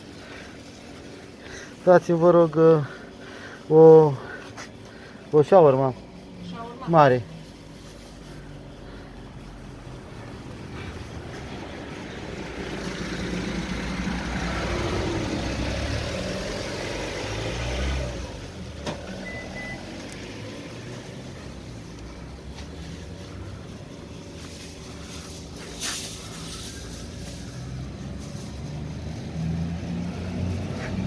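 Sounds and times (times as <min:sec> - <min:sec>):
road vehicle passing: 0:00.0 - 0:31.0
short high beep: 0:19.2 - 0:19.8.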